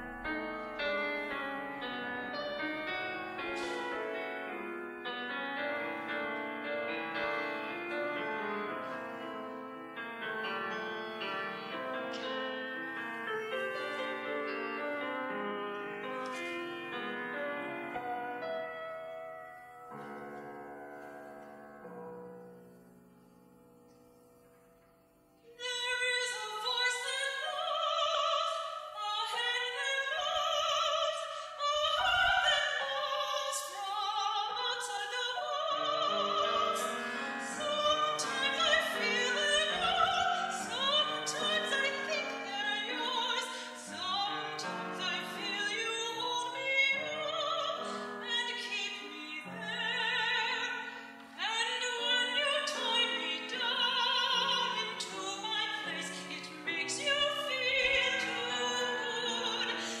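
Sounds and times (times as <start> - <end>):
soprano singing with vibrato: 0.0 - 9.5, 25.5 - 60.0
piano accompaniment: 0.0 - 60.0.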